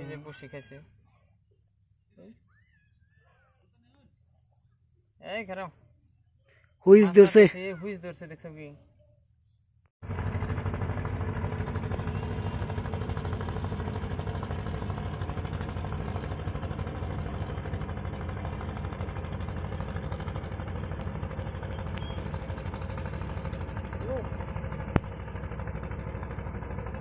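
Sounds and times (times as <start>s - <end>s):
motor boat engine chugging: 10.0s - 27.0s.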